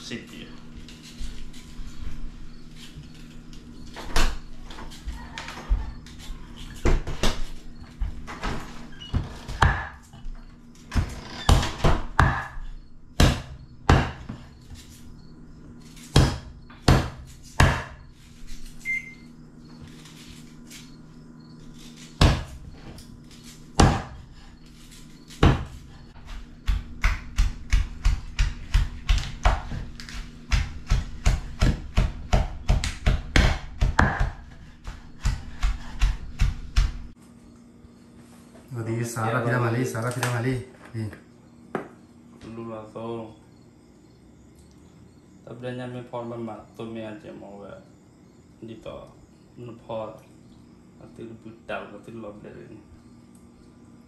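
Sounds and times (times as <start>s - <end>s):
cleaver chopping on wooden board: 9.5s - 10.1s, 11.0s - 12.6s, 13.2s - 14.4s, 16.1s - 18.0s, 22.2s - 22.6s, 23.7s - 24.2s, 25.4s - 37.1s
pestle pounding in mortar: 11.5s - 12.6s, 13.2s - 14.3s, 16.2s - 18.0s, 23.8s - 24.2s, 26.5s - 37.1s.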